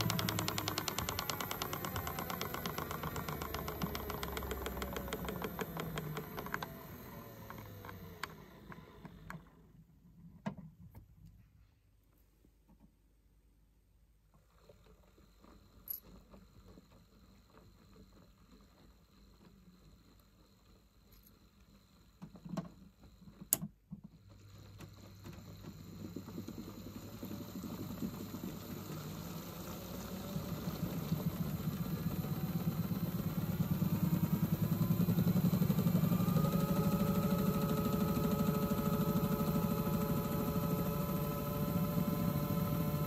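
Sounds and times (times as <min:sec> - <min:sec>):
toy washing machine clicks: 0:00.0 - 0:06.8
small drum motor running: 0:00.0 - 0:09.7, 0:14.4 - 0:43.0.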